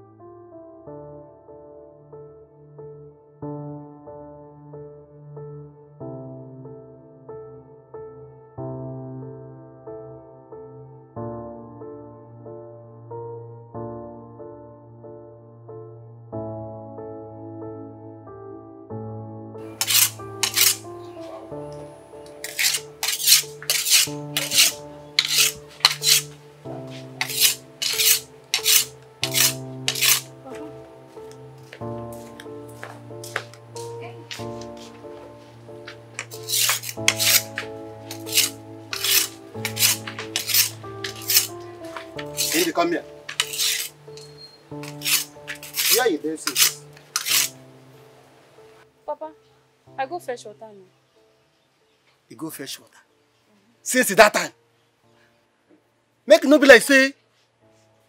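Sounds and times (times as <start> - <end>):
background music: 0.0 - 58.0
knife scraping on sharpening stone: 19.8 - 20.9, 22.3 - 26.4, 27.2 - 30.3, 36.2 - 41.6, 42.2 - 47.6.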